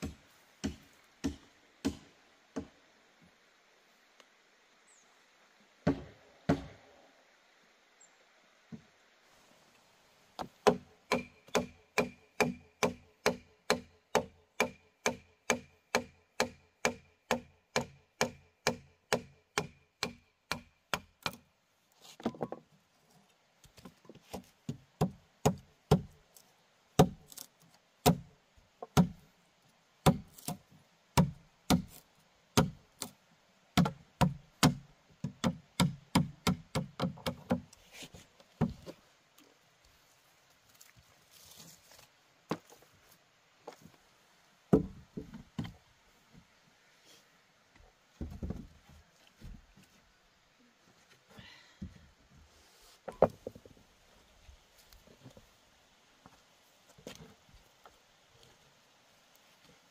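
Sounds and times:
tool striking wood: 0:00.0 - 0:02.7, 0:05.8 - 0:06.8, 0:10.4 - 0:21.4, 0:44.7 - 0:45.4.

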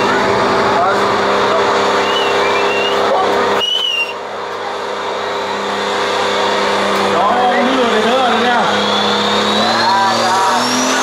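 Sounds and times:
high whistling chirps: 0:02.0 - 0:04.2.

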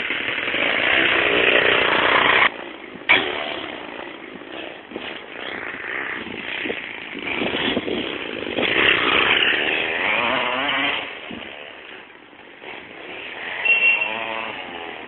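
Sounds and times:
model car engine revving: 0:04.5 - 0:11.9, 0:12.6 - 0:15.0.

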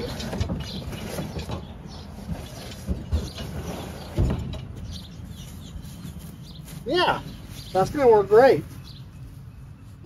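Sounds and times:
kayak hull scraping and knocking: 0:00.0 - 0:04.8.

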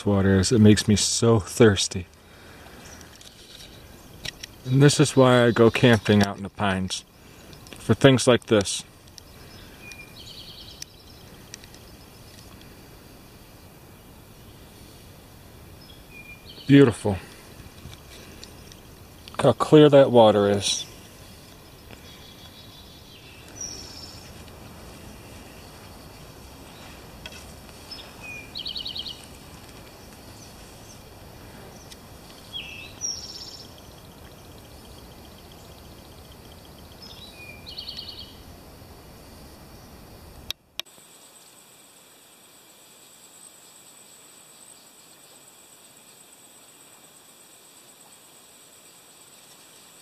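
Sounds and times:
outdoor background hiss: 0:00.0 - 0:50.0
songbird buzzy trill: 0:02.0 - 0:38.6.

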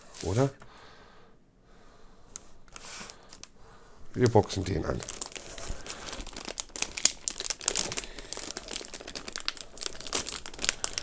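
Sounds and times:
packaging crinkling and rustling: 0:04.2 - 0:11.0.

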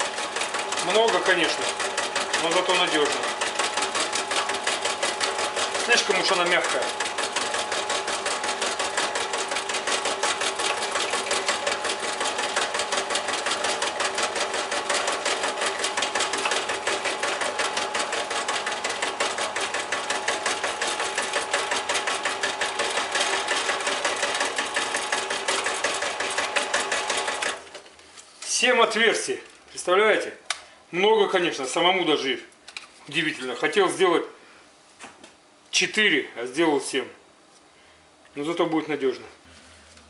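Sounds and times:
drill press drilling plastic: 0:00.0 - 0:28.0.

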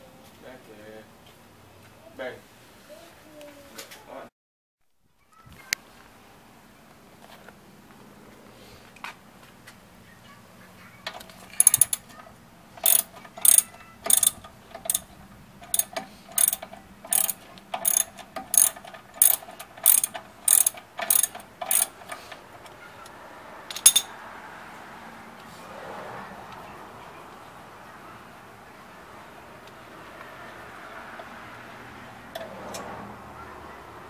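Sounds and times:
ratchet wrench clicking: 0:11.1 - 0:12.1, 0:12.8 - 0:22.7, 0:23.7 - 0:24.1.

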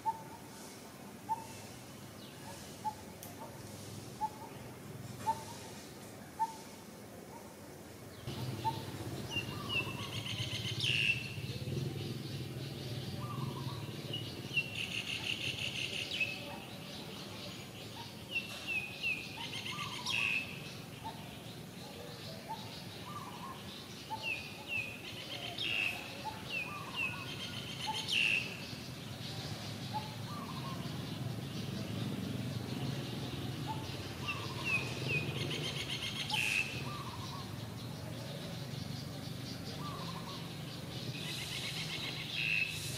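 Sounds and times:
bird singing: 0:00.0 - 0:00.6, 0:04.2 - 0:05.7, 0:08.1 - 0:42.9.

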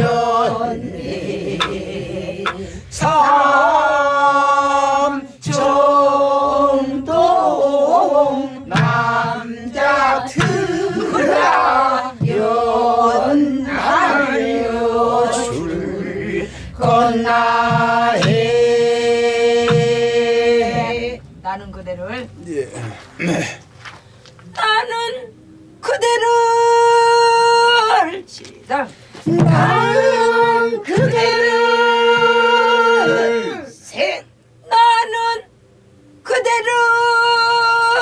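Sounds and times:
people singing folk song: 0:00.0 - 0:21.4, 0:28.9 - 0:35.1.

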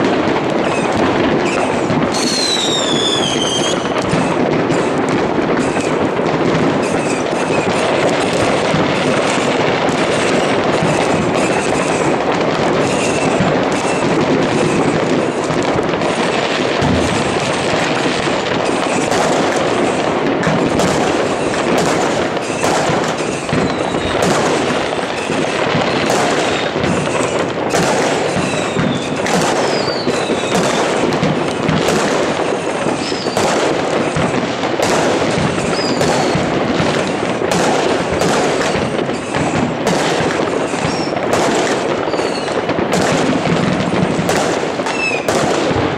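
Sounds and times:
fireworks crackling and banging: 0:00.0 - 0:45.9
rocket whistles: 0:00.6 - 0:04.8, 0:12.8 - 0:14.7, 0:21.8 - 0:24.4, 0:25.2 - 0:31.6, 0:32.9 - 0:33.5, 0:35.6 - 0:36.5, 0:38.6 - 0:39.5, 0:40.7 - 0:41.2, 0:42.0 - 0:42.7, 0:44.8 - 0:45.4.

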